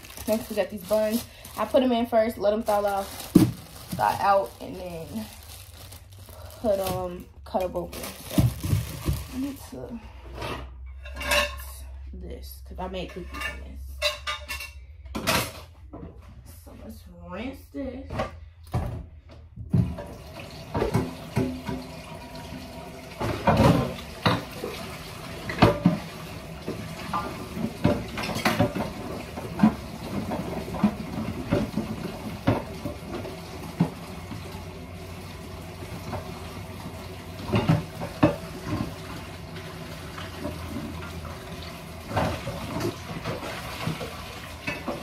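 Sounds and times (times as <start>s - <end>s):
tap running into a sink: 19.7s - 22.6s.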